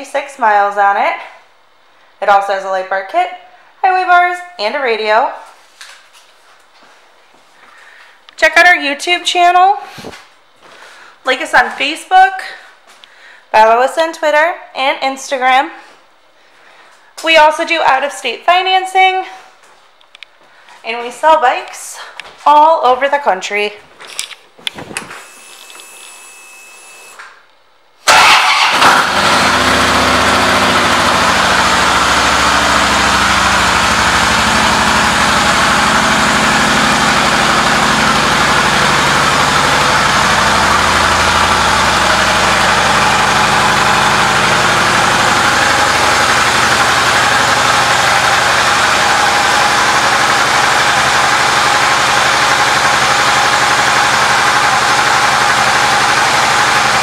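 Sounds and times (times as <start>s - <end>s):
motorcycle starting and idling: 28.0s - 57.0s.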